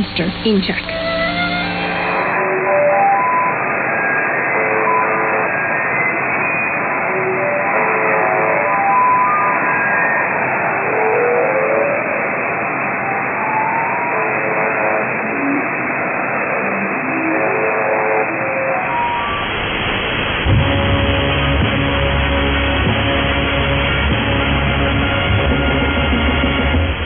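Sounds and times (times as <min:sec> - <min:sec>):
warbling jammer tones: 0:00.0 - 0:03.8
radio static hiss: 0:00.0 - 0:24.5
bass-heavy music over radio: 0:20.4 - 0:27.0.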